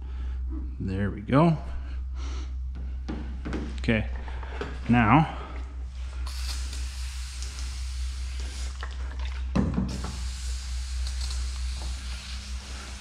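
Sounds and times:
steady low hum: 0.0 - 13.0
pressure sprayer hissing: 6.2 - 8.8, 9.9 - 13.0.

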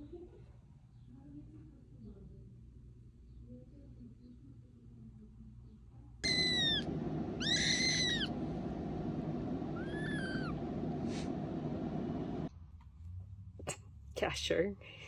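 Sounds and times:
kitten mewing: 6.2 - 8.3, 9.8 - 10.6
steady background noise: 6.2 - 12.5.

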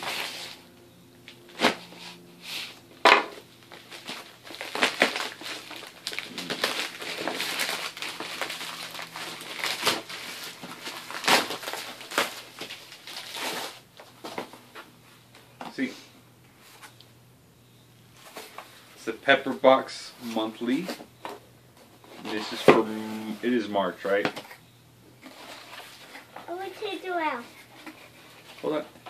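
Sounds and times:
plastic ripping: 3.0 - 14.5
plastic crinkling and rustling: 3.6 - 14.9.

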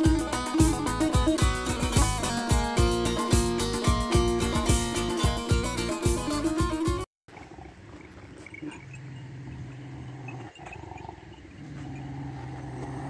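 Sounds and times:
music: 0.0 - 7.1
dog growling low: 9.4 - 13.0.

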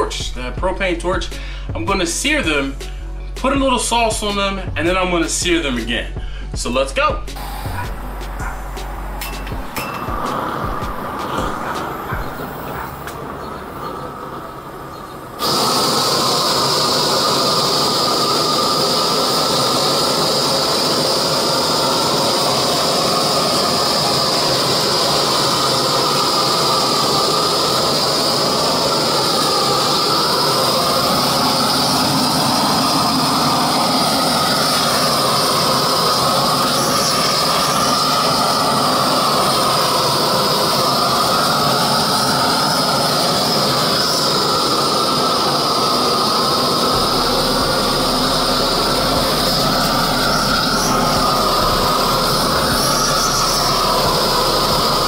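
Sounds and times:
propane torch hissing: 1.4 - 3.4, 7.3 - 55.0.

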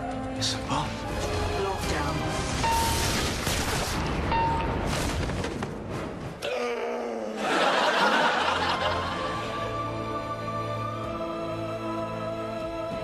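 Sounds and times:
drama music and sound effects: 0.0 - 6.4.

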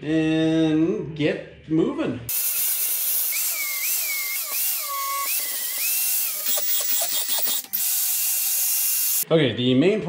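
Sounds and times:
angle grinder grinding steel: 2.3 - 9.2.

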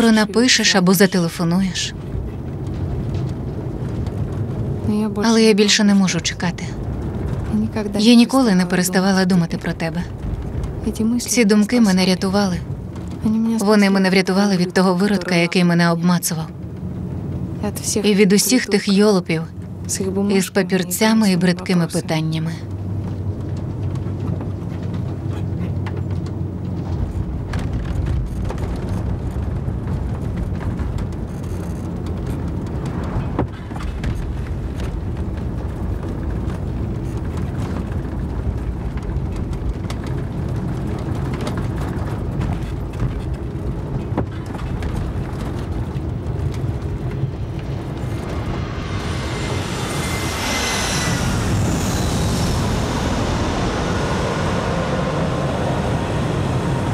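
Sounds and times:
road noise: 0.0 - 56.9
van engine rumble: 0.0 - 56.9
small rattles and knocks: 22.7 - 48.2
jet airliner engine passing: 32.4 - 41.8, 45.4 - 56.9.

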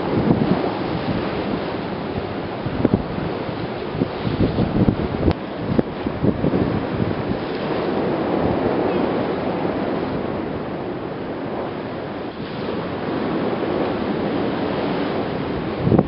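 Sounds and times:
rough sea rushing: 0.0 - 16.0
wind buffeting microphone: 0.0 - 16.0.

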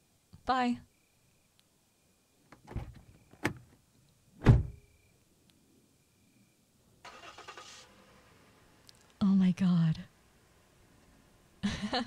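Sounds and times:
faint steady hiss: 0.0 - 12.0
car door latch clunk: 2.5 - 3.7, 4.4 - 4.8
car door slamming: 2.6 - 3.6, 4.4 - 4.8.

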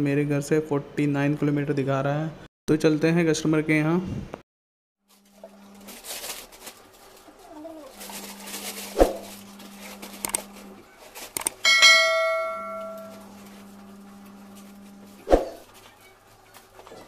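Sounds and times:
plastic bag rustling: 5.1 - 11.4
tools being handled: 9.8 - 13.5
click: 10.2 - 10.4, 11.4 - 11.6
bright bell-like ding: 11.6 - 13.2.

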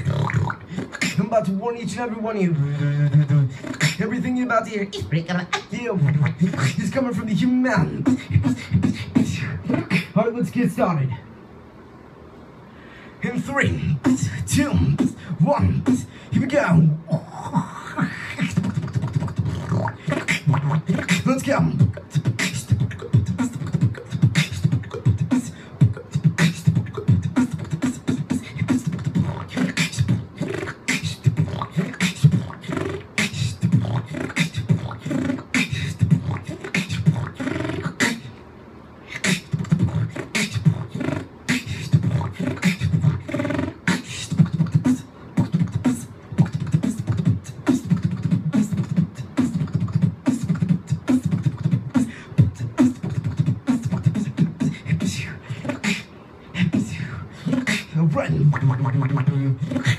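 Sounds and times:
person beatboxing: 0.0 - 11.2, 13.2 - 38.5, 39.1 - 59.9.

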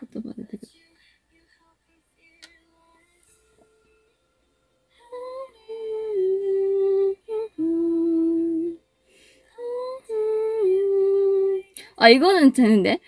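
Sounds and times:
woman humming: 5.1 - 8.8, 9.6 - 11.8.

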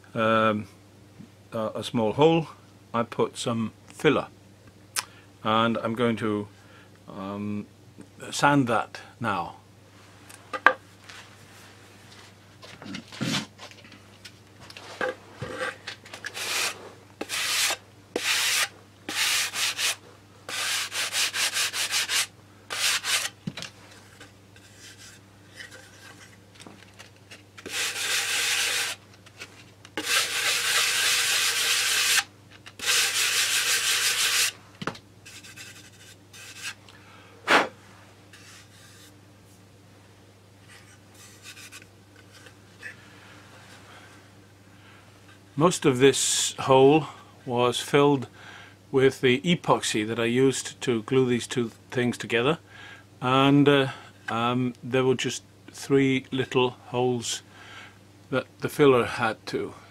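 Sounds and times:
sandpaper block sanding wood: 16.3 - 23.4, 27.6 - 29.0, 30.0 - 34.6, 35.3 - 36.8.

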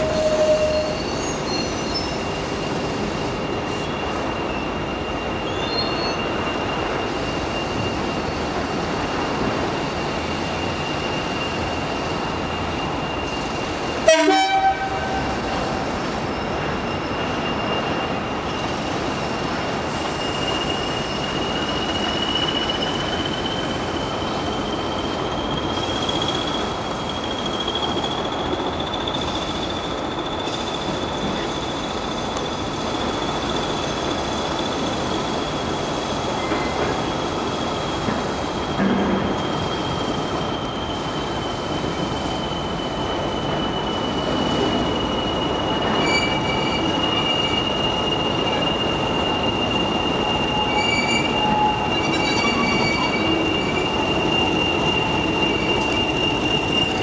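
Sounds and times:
high whistle falling in pitch: 42.9 - 57.0.

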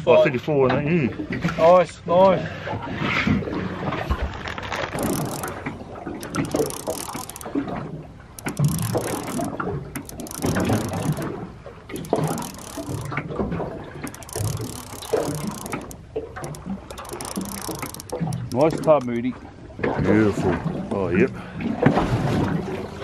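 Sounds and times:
fishing reel winding: 4.3 - 19.2.

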